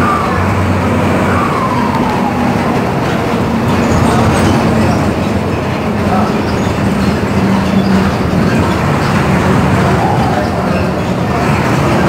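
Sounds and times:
turbocharger whistle: 0.0 - 2.8
bus engine drone: 0.0 - 12.0.

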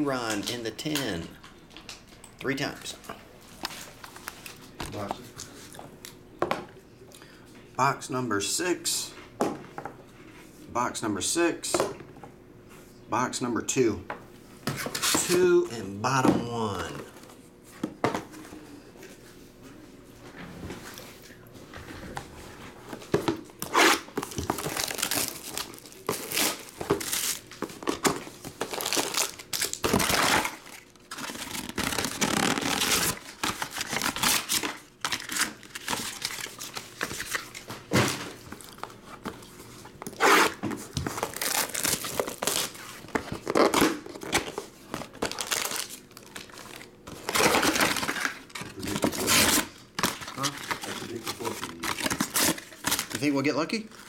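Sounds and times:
plastic wrap crinkling and tearing: 23.6 - 37.6, 40.1 - 54.0.

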